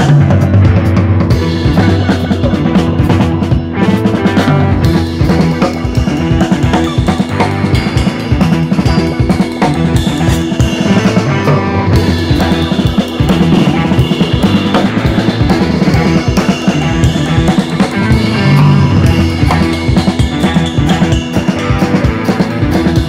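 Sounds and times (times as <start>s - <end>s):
upbeat music with drum beat: 0.0s - 23.0s.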